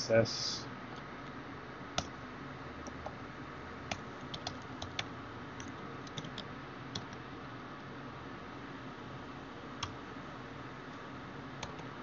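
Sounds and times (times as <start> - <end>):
faint steady hiss: 0.0 - 2.2
typing on computer keyboard: 3.9 - 7.2, 11.6 - 11.9.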